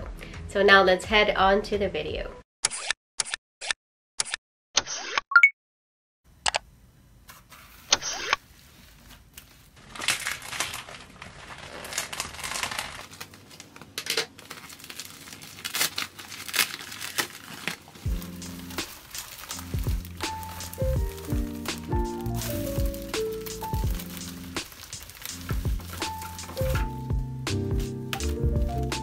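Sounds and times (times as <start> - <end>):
bubble wrap crinkling: 8.5 - 29.0
plastic ripping: 9.0 - 29.0.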